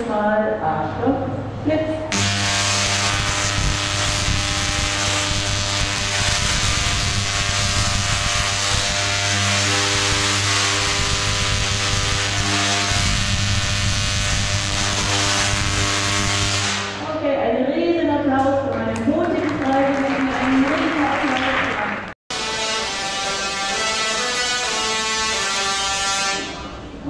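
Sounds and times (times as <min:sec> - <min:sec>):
sparks crackling: 0:02.1 - 0:16.9
tesla coil electric buzz: 0:02.1 - 0:17.1, 0:22.3 - 0:27.0.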